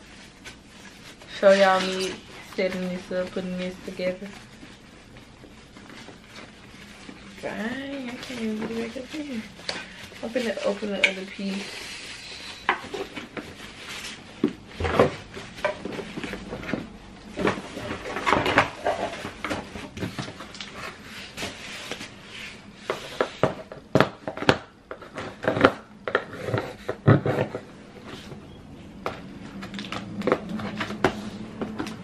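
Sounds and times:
plastic packaging crinkling: 0.0s - 22.2s.

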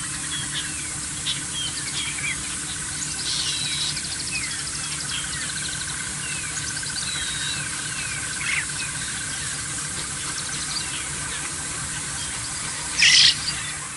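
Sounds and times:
bird chirps and whistles: 13.0s - 13.7s.

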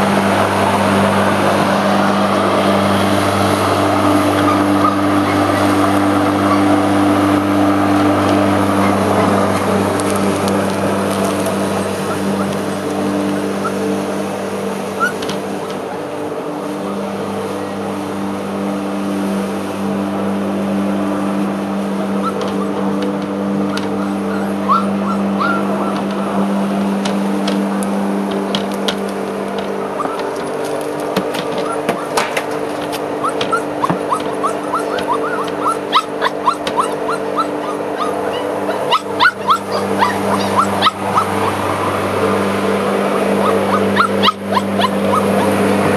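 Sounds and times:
lawn mower engine running: 0.0s - 45.9s
puppy whining: 4.3s - 9.5s, 11.8s - 13.9s, 15.0s - 15.8s, 22.2s - 26.4s, 30.0s - 30.7s, 31.4s - 32.2s, 33.0s - 41.6s, 43.1s - 45.6s.

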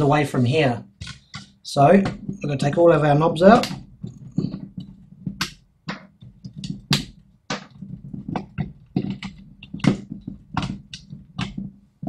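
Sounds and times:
plastic knobs clicking and scraping: 1.0s - 12.0s.

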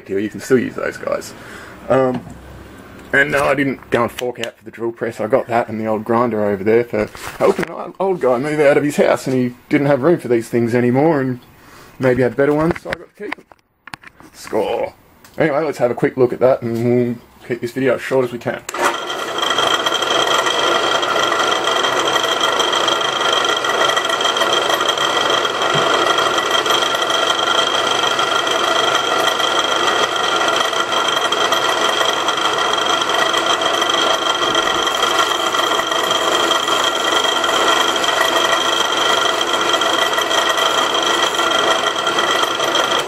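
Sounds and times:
drill press motor running: 18.7s - 43.0s
scraping of metal cutting: 18.7s - 43.0s.

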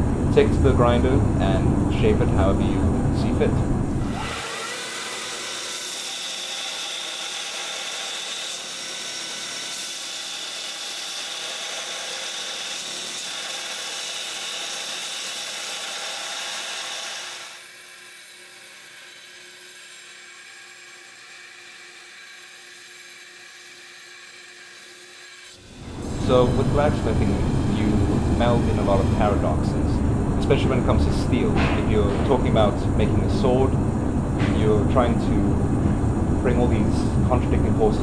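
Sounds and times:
power grinder grinding steel: 4.0s - 29.5s.

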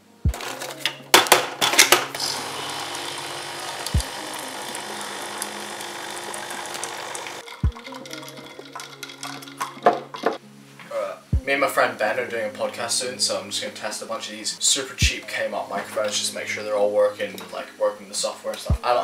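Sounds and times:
coffee machine pump running: 1.7s - 7.5s
coffee pouring into cup: 2.1s - 10.2s.

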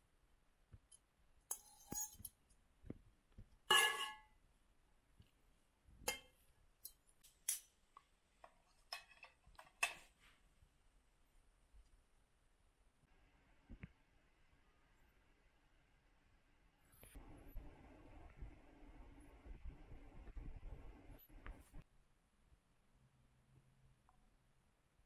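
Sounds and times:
cutlery and dishes clinking: 1.5s - 2.4s, 3.7s - 4.3s, 8.8s - 10.1s.

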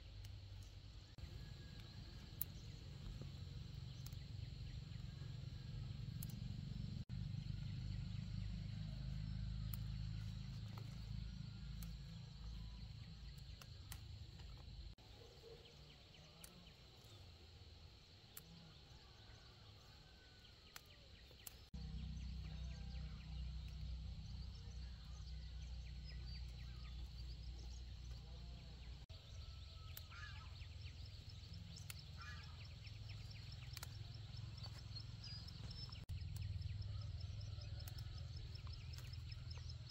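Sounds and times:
low hum: 0.0s - 15.0s, 21.4s - 39.9s
plant stems snapping and rustling: 9.6s - 12.4s, 13.2s - 14.8s, 33.1s - 36.1s, 37.8s - 39.6s
bird chirps: 18.3s - 39.9s.

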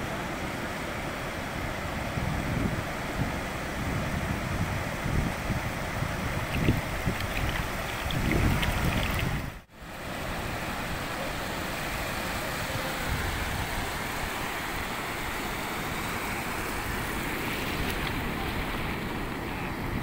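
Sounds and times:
ocean surf washing: 0.0s - 20.0s
wind gusting on microphone: 2.0s - 9.7s.

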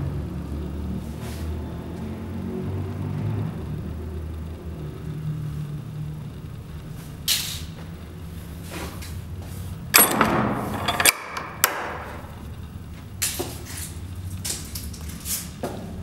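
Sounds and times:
steady low rumble: 3.5s - 10.9s.

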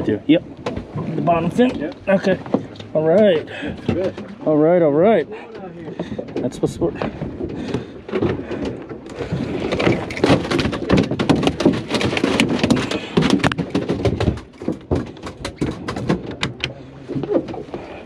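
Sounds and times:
boat hatch knocking and clattering: 0.6s - 17.8s
sharp clicks and bumps: 5.6s - 17.6s.

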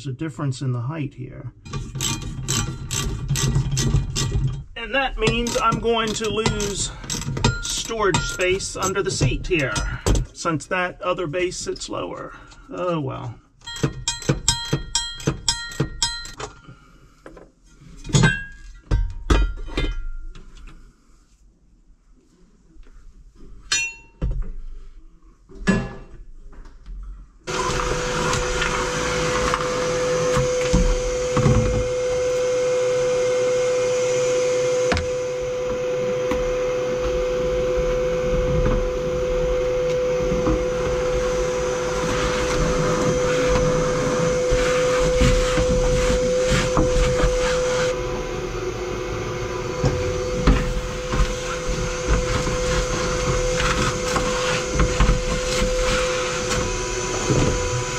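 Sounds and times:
clinks and knocks: 1.7s - 10.3s, 13.6s - 16.8s, 18.0s - 20.5s
shop vacuum running: 4.8s - 9.8s, 27.4s - 57.9s
vacuum hose sucking dirt: 27.5s - 57.9s.

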